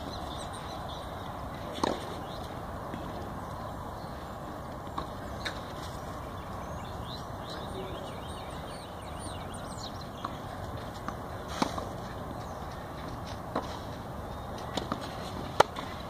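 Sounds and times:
birds chirping: 0.0 - 16.0
racquet hitting tennis ball: 1.8 - 2.2.

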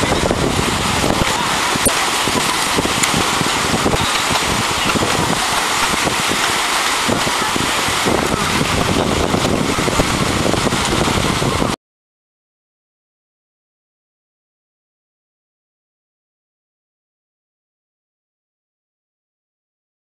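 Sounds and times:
waves breaking on shore: 0.0 - 11.8
wind buffeting microphone: 0.0 - 11.8.

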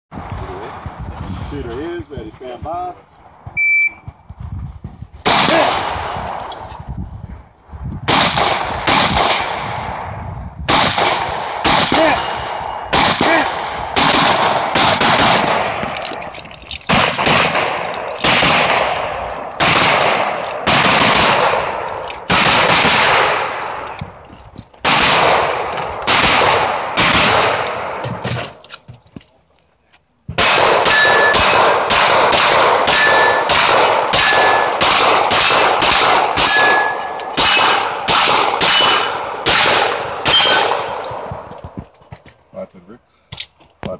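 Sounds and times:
rifle gunshots echoing: 5.2 - 6.5, 8.1 - 24.0, 24.8 - 28.5, 30.4 - 41.5
steel targets ringing: 36.4 - 37.2, 40.3 - 40.7.

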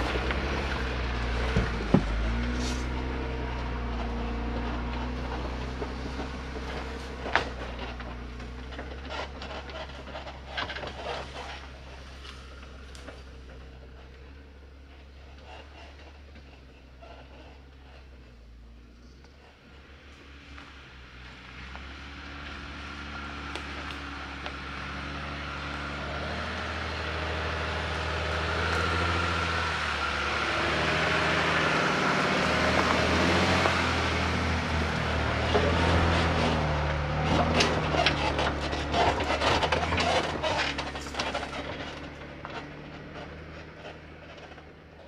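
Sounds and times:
vehicle engine at low revs: 0.0 - 45.0
sticks and branches crackling: 20.1 - 45.0.

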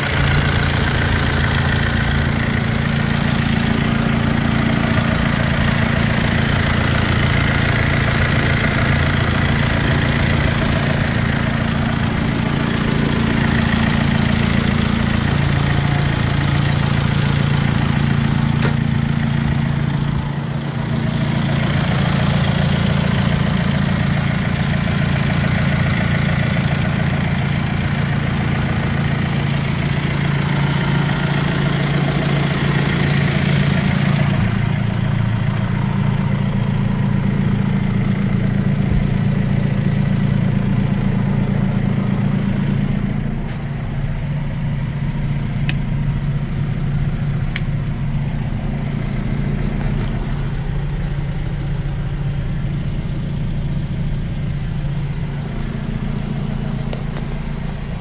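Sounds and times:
tractor diesel engine idling: 0.0 - 58.0
sharp click: 18.6 - 18.9.

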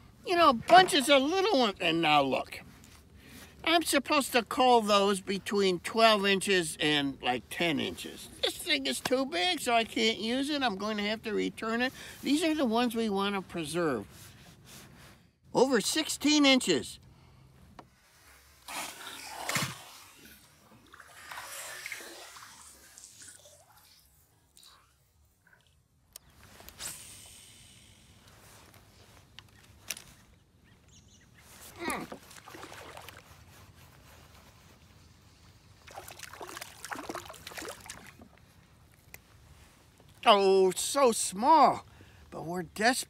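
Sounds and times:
fish splashing in water: 18.7 - 23.4, 35.8 - 38.3
fish splashing at water surface: 35.8 - 38.2.

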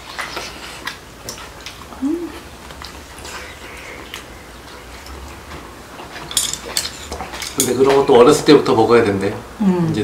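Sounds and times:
person humming mm: 2.0 - 2.5.

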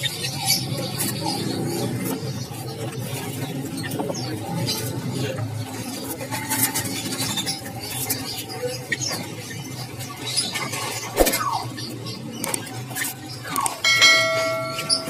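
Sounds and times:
songbirds chirping: 11.5 - 15.0.

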